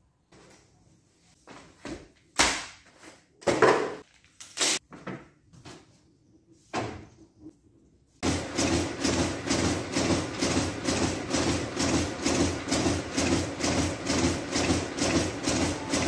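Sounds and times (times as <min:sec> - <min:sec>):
duplicator machine running: 0:08.2 - 0:16.0.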